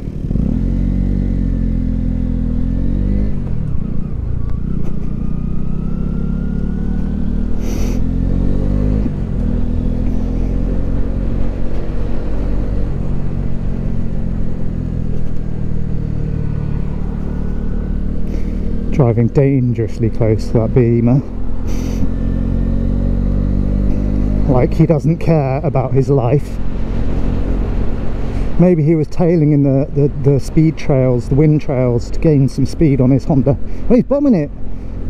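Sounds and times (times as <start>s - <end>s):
motorcycle engine accelerating: 0.0s - 35.0s
brief hiss: 21.7s - 22.1s.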